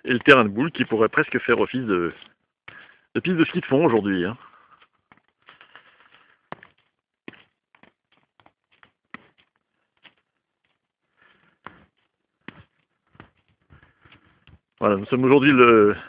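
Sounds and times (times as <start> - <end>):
footsteps crunching in snow: 0.0 - 15.2.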